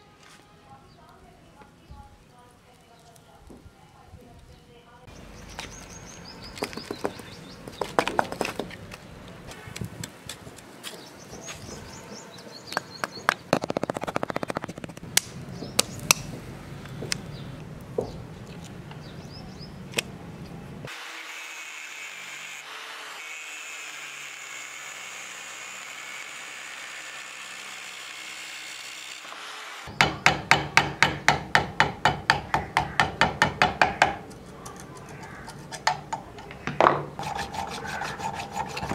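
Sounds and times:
knocking and scraping on casting: 32.6 - 38.9.

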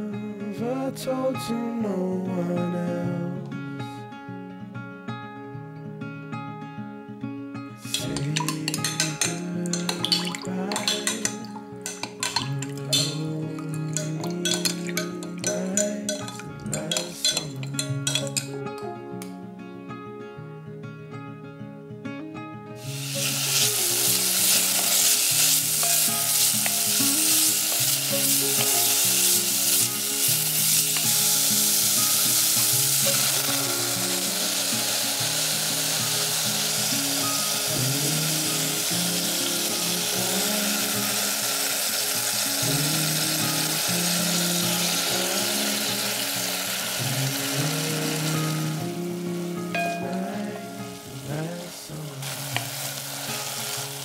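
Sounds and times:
root sizzling in hot oil: 7.9 - 18.5, 22.8 - 49.0, 49.7 - 54.0.

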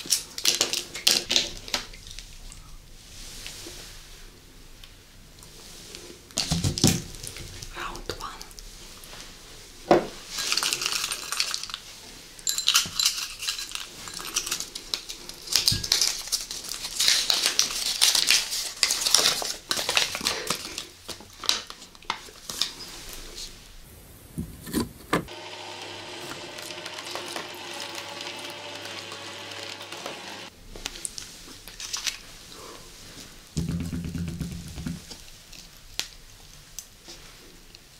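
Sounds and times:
paper cards crinkling: 14.9 - 20.9
steady sound: 33.6 - 35.2.

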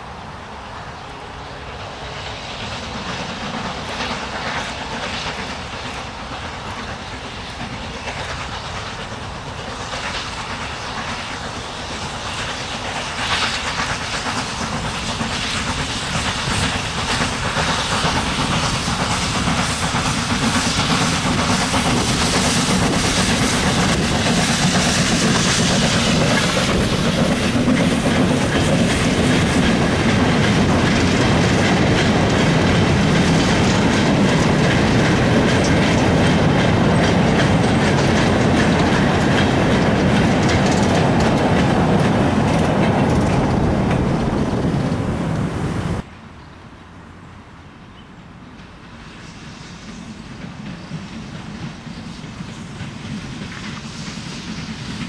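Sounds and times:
steam locomotive: 0.0 - 55.0
wagons rumbling and clattering: 21.0 - 46.0.

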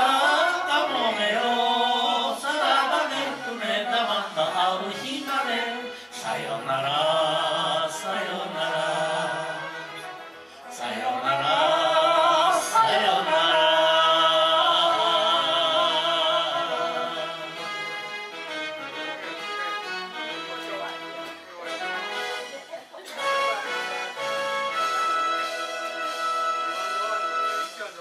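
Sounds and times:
group singing in unison: 0.0 - 17.7
instrumental accompaniment: 0.0 - 28.0.

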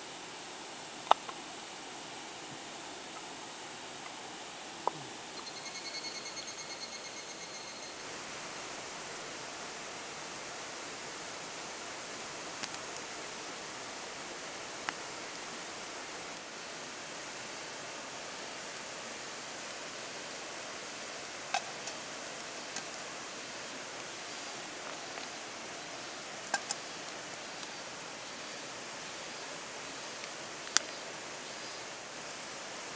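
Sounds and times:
river flowing over stones: 8.0 - 32.9.

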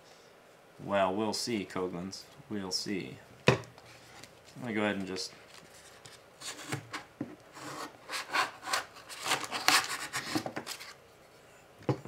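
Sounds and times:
knife sawing through plastic: 7.5 - 10.9.

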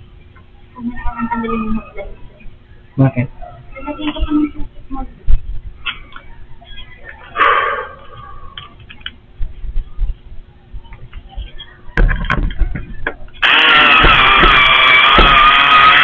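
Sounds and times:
power drill whining: 13.4 - 16.0.

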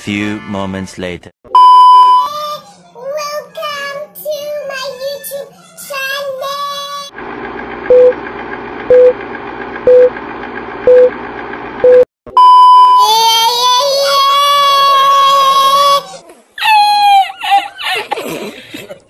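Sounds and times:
short loud beeps: 1.5 - 2.3, 11.8 - 13.1.

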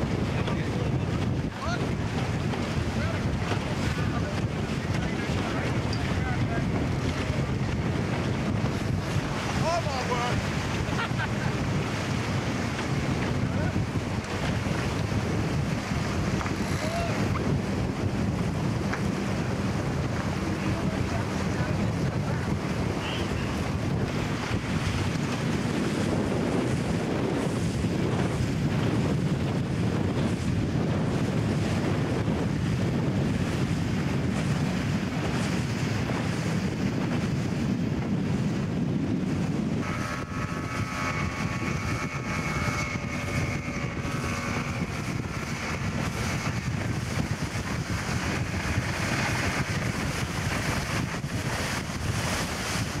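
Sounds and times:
boat wake rushing: 0.0 - 53.0
outboard motor whining at speed: 0.0 - 53.0
rushing water: 0.0 - 53.0
wind buffeting microphone: 0.0 - 53.0.

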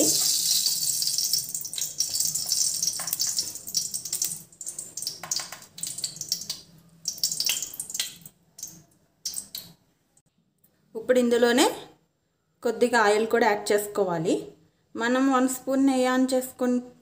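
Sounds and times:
ghee sizzling in a pan: 0.0 - 8.8.

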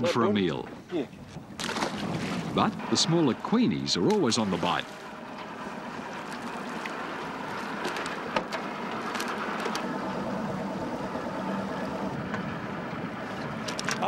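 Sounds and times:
outboard motor humming: 0.0 - 14.0
clicks and knocks on boat: 7.8 - 9.9.

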